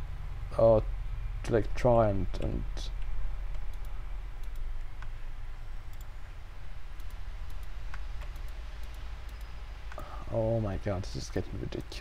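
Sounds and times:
steady low hum: 0:00.0 - 0:12.0
computer mouse clicks: 0:02.4 - 0:05.2, 0:05.9 - 0:06.1, 0:06.9 - 0:10.1.

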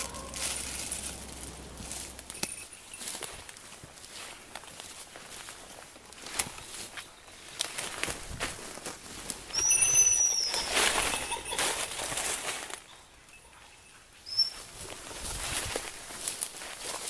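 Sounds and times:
footsteps through undergrowth: 0:00.0 - 0:13.1, 0:14.4 - 0:17.0.

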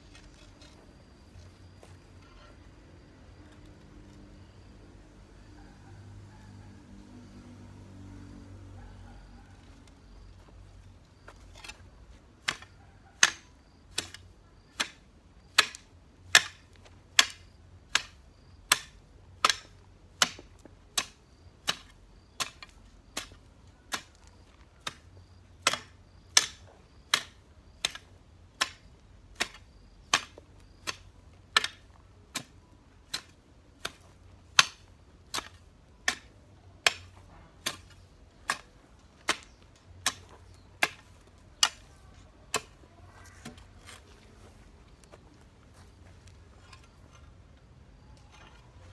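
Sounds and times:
garden hoe chopping into ground: 0:11.2 - 0:45.2.

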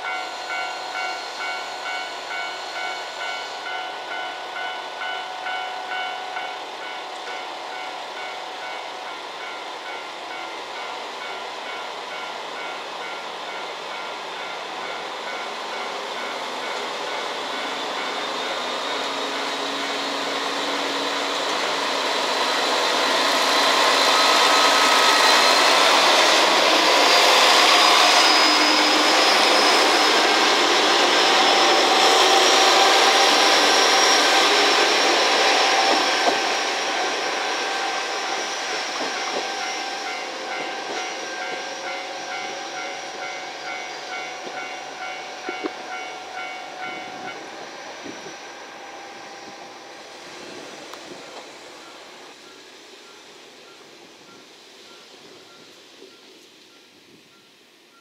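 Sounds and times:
level-crossing bell ringing: 0:00.0 - 0:19.5, 0:37.1 - 0:47.5
diesel railcar passing: 0:00.0 - 0:58.0.

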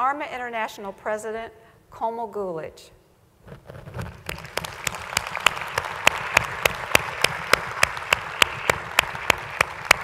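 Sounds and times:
close loud hand claps: 0:04.0 - 0:10.0
audience applauding: 0:04.1 - 0:10.0.

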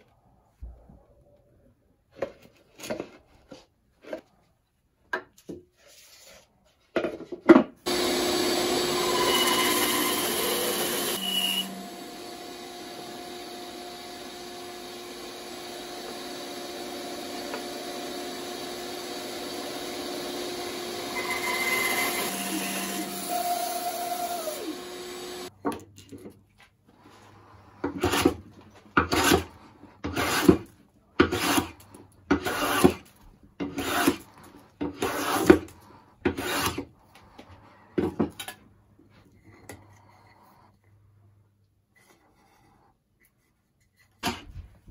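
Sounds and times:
bandsaw cutting wood: 0:07.8 - 0:25.5, 0:27.8 - 0:28.4, 0:29.0 - 0:36.9
hand plane strokes on wood: 0:33.6 - 0:36.9.

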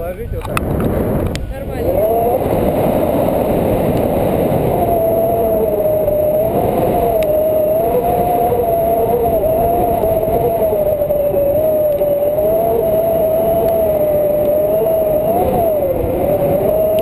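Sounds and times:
wind buffeting microphone: 0:00.0 - 0:17.0
thin wavering whistle: 0:04.1 - 0:17.0.

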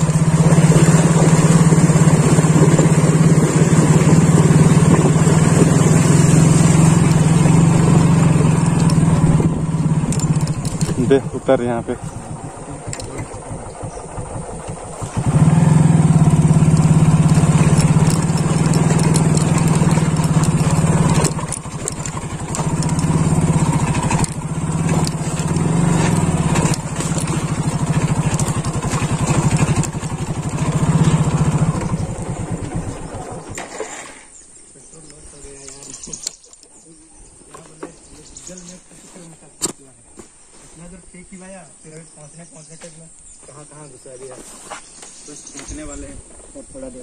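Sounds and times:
motorcycle engine running hard: 0:00.0 - 0:33.7.

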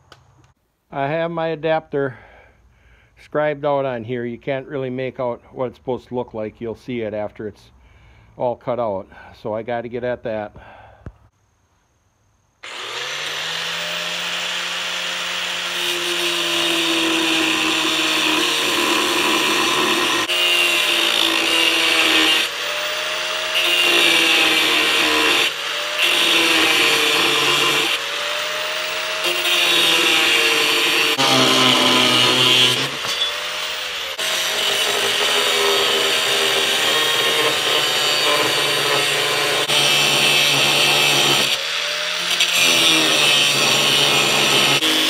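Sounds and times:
angle grinder cutting steel: 0:12.6 - 0:45.0.

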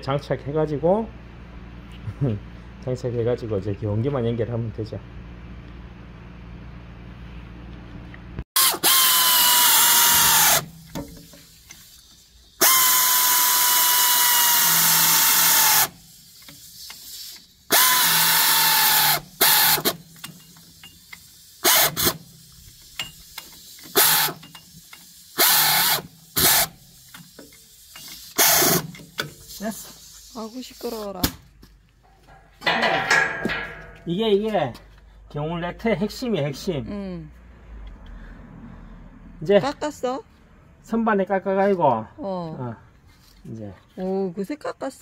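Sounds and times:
impact wrench whining and rattling: 0:08.6 - 0:31.3, 0:32.6 - 0:34.1.

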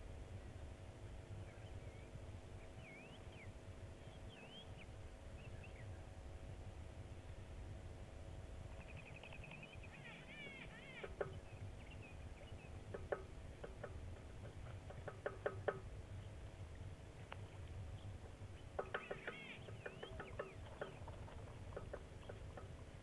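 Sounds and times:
steady low background hiss: 0:00.0 - 0:23.0
birds calling: 0:08.7 - 0:16.6, 0:17.2 - 0:23.0.

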